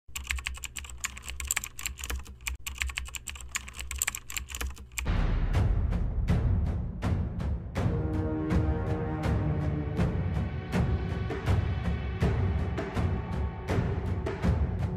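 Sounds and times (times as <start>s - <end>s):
keyboard typing clicks: 0.1s - 5.1s
music with deep drum hits: 5.1s - 14.9s.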